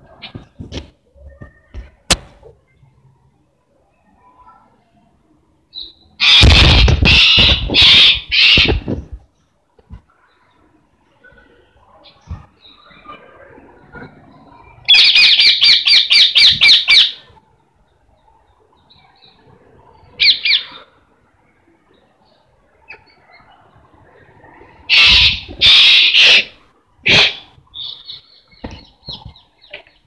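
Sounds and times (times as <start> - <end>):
parrot squawking: 6.2 - 8.8, 14.9 - 17.2, 24.9 - 27.5.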